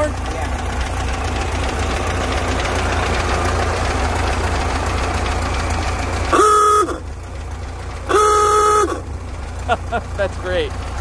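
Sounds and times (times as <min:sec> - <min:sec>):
car engine idling: 0:00.0 - 0:11.0
car horn honk: 0:06.3 - 0:07.1, 0:08.1 - 0:09.1.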